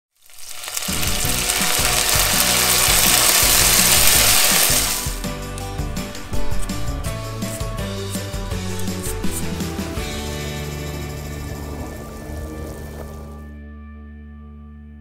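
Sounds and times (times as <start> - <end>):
loud even hiss: 0.2 - 7.6
background music with bass: 0.8 - 15.0.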